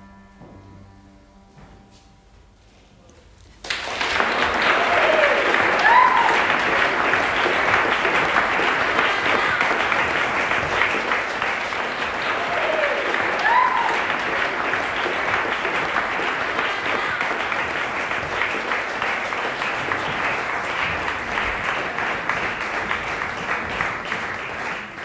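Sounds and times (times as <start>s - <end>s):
audience applauding: 3.6s - 25.0s
person whooping: 4.6s - 6.6s, 12.2s - 14.2s.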